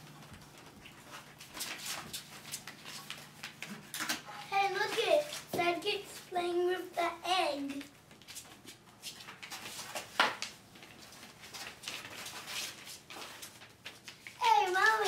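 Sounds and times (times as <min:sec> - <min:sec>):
puppies rustling on plastic pads: 0:00.0 - 0:15.0
child's voice: 0:04.4 - 0:07.9, 0:14.4 - 0:15.0.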